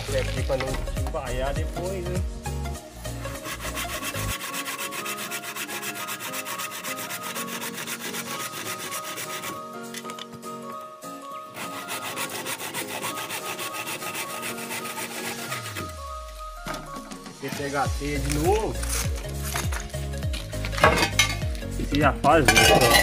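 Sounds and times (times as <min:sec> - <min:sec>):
handsaw cutting wood: 0:03.2 - 0:09.8, 0:11.5 - 0:16.1.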